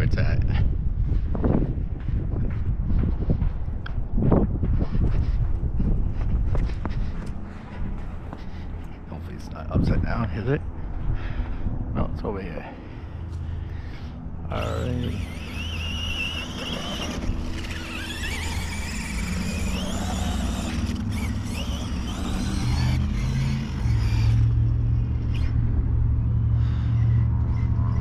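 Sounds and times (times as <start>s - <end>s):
steady low rumble: 0.0s - 28.0s
electric motor whining: 14.0s - 28.0s.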